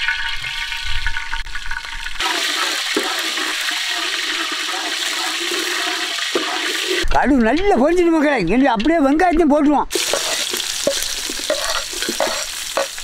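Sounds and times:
mustard seeds sizzling in oil: 0.0s - 7.1s, 9.9s - 13.0s.

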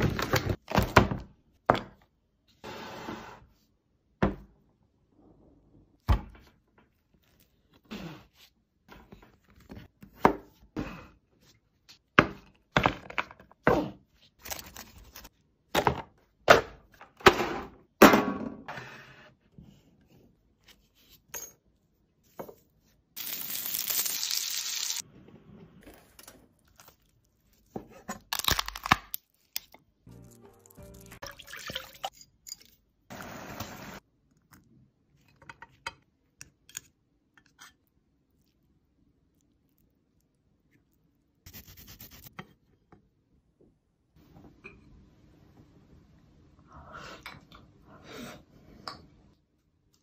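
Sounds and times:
cracking crab and lobster shells: 28.2s - 29.8s.

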